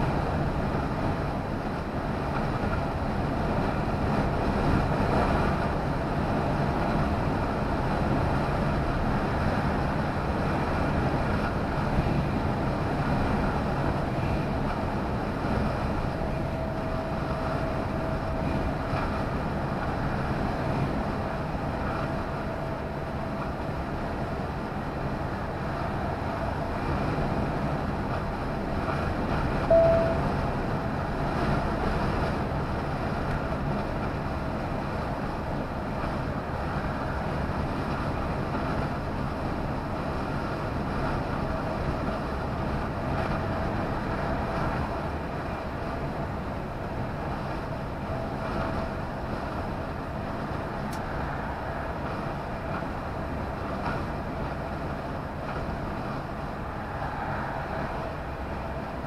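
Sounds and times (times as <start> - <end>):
road and engine noise in cab: 0.0 - 59.0
short beep: 29.7 - 30.4.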